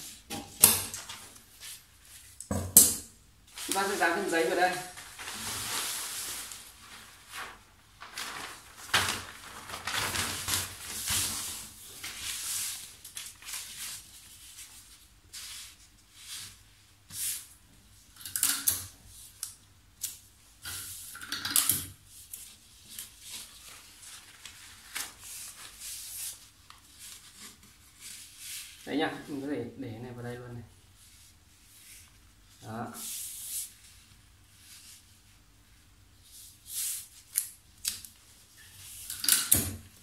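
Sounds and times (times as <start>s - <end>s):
paper rustling and crinkling: 0.8s - 2.4s, 3.5s - 16.6s, 22.1s - 29.3s.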